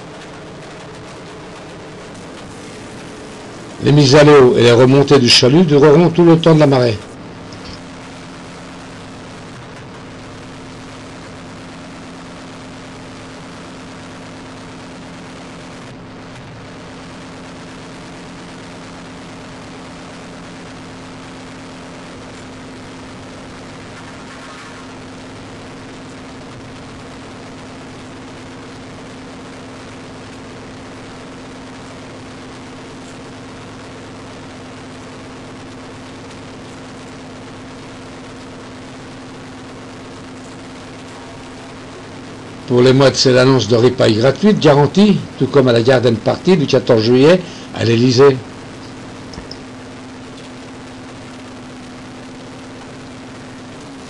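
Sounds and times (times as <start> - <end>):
boat engine droning: 0.0 - 6.4.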